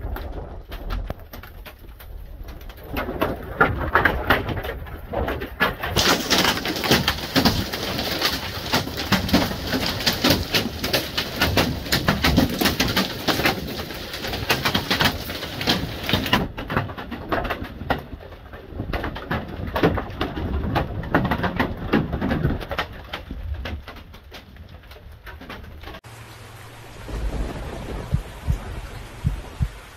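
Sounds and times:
hail and heavy rain pelting: 0.0s - 29.9s.

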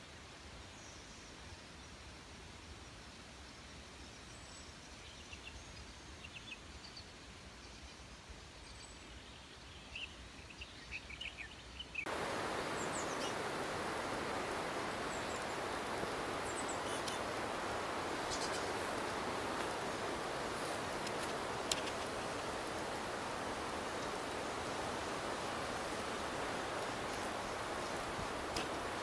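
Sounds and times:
bird chirps: 11.2s - 25.4s
steady hiss: 12.0s - 29.0s.

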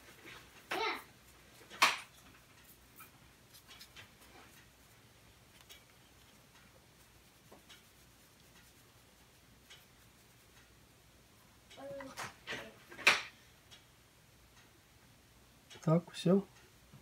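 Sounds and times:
light handling ticks: 0.0s - 10.8s
small brush scratching circuit board: 1.2s - 10.7s.

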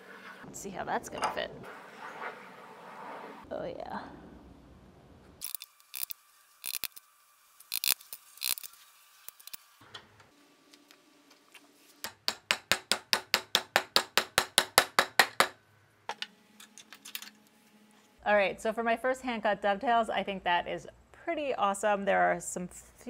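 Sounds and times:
wooden parts clicking and knocking: 5.4s - 7.0s, 7.6s - 8.7s.

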